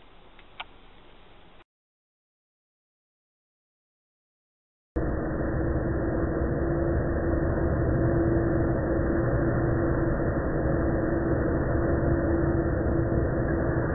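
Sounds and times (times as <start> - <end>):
low rumble with hum: 5.0 - 13.9.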